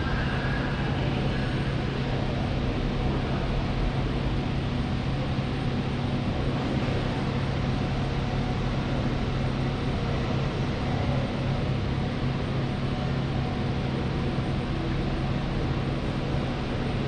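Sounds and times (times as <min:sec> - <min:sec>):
wash of background noise: 0:00.0 - 0:17.0.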